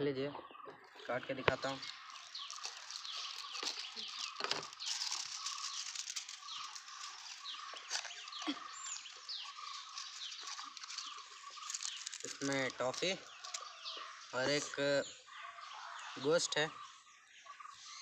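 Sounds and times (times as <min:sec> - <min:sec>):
birds chirping: 0:00.0 - 0:18.0
cardboard box clicks and rustles: 0:01.5 - 0:08.4.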